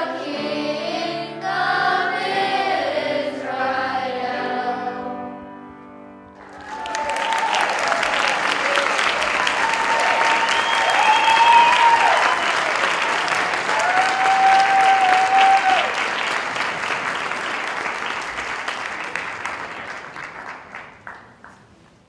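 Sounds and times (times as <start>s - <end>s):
long held cheers: 6.4s - 16.1s
audience applauding: 6.4s - 21.9s.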